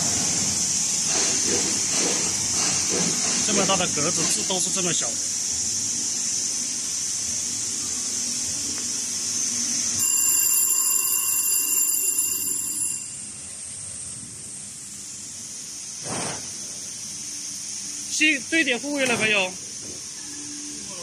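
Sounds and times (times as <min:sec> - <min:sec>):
machine hiss: 0:00.0 - 0:10.4, 0:13.2 - 0:21.0
high-pitched electronic buzzer: 0:10.0 - 0:13.5.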